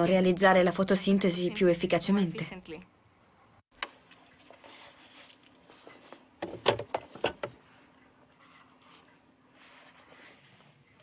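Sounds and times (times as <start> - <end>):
wooden knocks and clatter: 6.4 - 7.6.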